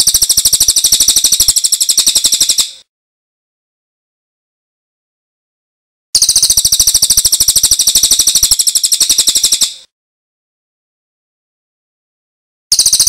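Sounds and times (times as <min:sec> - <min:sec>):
songbird high-pitched trill: 0:00.0 - 0:02.8, 0:06.2 - 0:09.9, 0:12.7 - 0:13.0.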